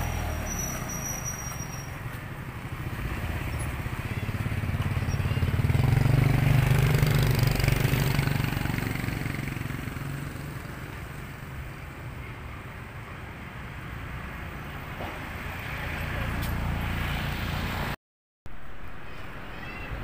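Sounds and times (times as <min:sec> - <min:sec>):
vehicle driving past: 0:00.0 - 0:11.4.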